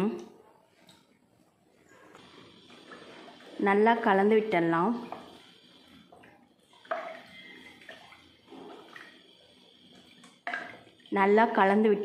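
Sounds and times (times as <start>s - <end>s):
spoon stirring liquid in a pot: 4.9s - 11.1s.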